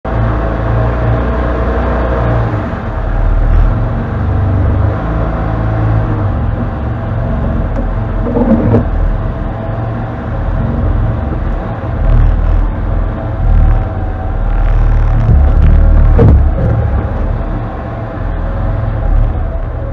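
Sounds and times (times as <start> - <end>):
engine running at low speed: 0.0 - 19.9
short clatter: 7.7 - 9.0.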